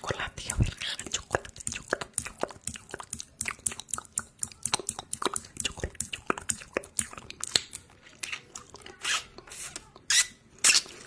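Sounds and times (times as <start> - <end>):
wet lip smacks: 0.9 - 11.0
tongue clicks: 1.0 - 10.8.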